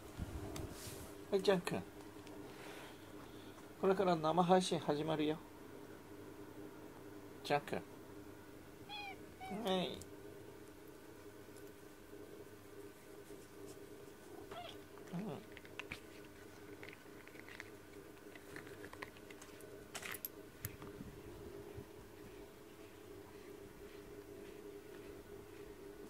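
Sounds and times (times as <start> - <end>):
faint steady hum: 0.0 - 26.0
cat meowing: 8.8 - 9.7, 14.5 - 14.8
faint clicks and rustles: 12.7 - 25.8.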